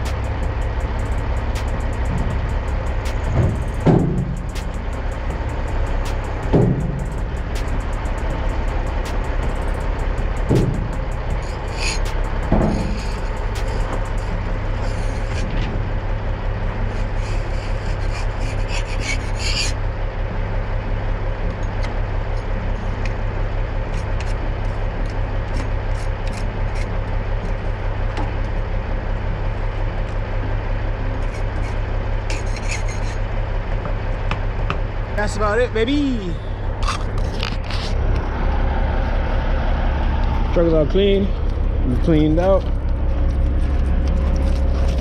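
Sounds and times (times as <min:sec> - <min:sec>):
diesel engine idling: 0:00.0 - 0:45.0
scraping dirt off metal: 0:10.5 - 0:15.9, 0:16.8 - 0:19.8, 0:31.2 - 0:33.2.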